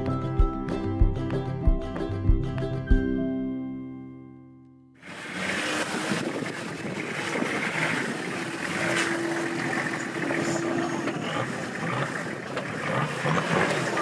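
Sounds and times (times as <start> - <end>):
off-road vehicle engine under load: 5.0 - 14.0.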